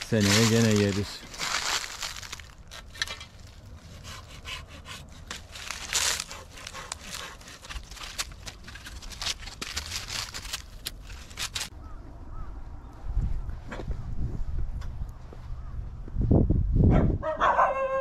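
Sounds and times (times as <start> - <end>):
twigs snapping: 0.0 - 3.8, 5.2 - 11.7
dry leaves crackling and rustling: 0.0 - 3.9, 5.4 - 11.7.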